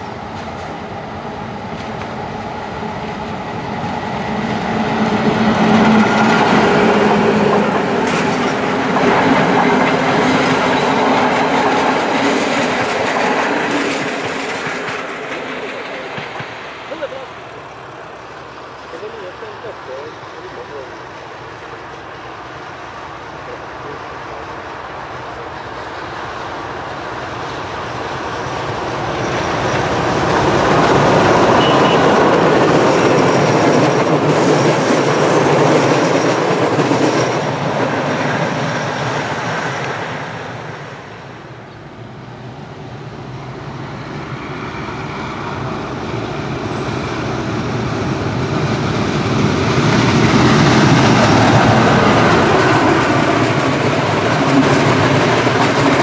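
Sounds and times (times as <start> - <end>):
train rumbling past: 0.0 - 56.0.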